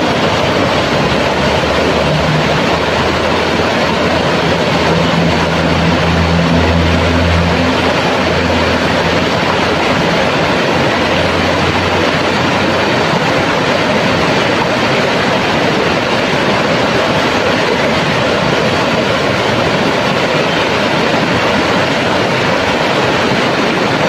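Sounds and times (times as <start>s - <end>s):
water rushing over rocks: 0.0s - 24.0s.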